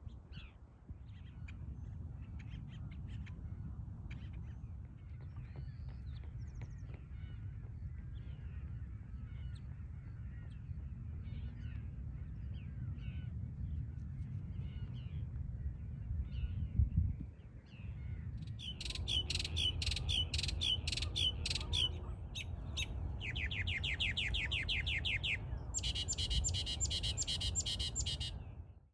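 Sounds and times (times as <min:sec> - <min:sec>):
distant bird chirps: 0:17.7 - 0:28.4
mockingbird singing: 0:18.5 - 0:28.4.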